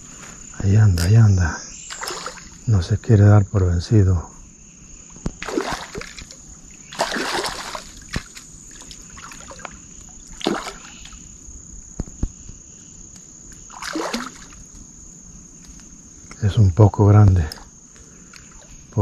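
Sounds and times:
high insect drone: 0.0s - 19.0s
fish splashing at water surface: 1.9s - 2.6s, 5.4s - 11.2s, 13.7s - 14.6s.

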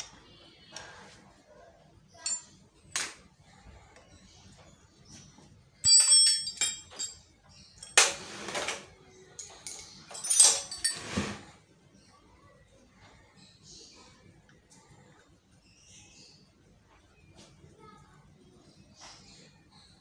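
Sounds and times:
sharp metallic clink: 5.8s - 7.2s
metal parts scraping and knocking: 7.8s - 11.5s
metal parts clicking: 9.4s - 11.0s.

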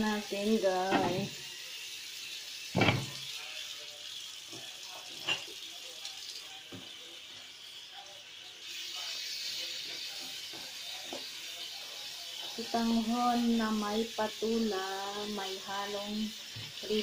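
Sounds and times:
water bubbling in a pot: 0.0s - 6.6s
gas stove hissing: 0.0s - 17.0s.

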